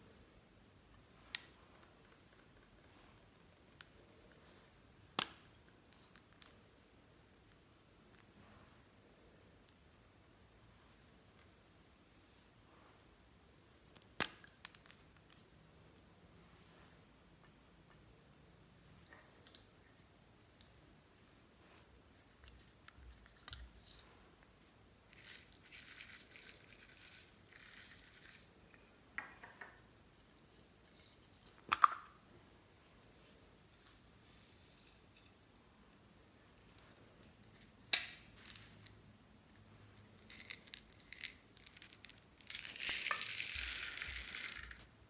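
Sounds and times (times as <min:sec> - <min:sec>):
plastic pieces rattling on glass: 0:40.3 - 0:44.8.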